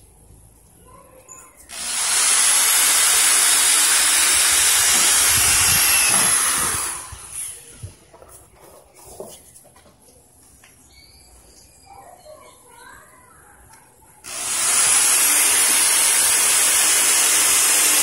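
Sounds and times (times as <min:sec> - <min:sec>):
electric drill boring into wood: 0:01.7 - 0:07.6, 0:14.2 - 0:18.0.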